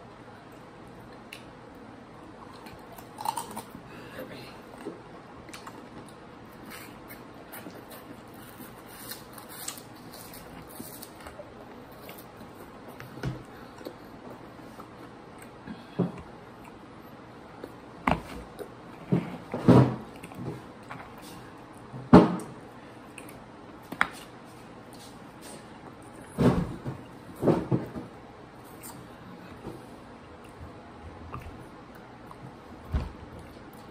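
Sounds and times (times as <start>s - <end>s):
crunching snacks: 2.6s - 3.8s.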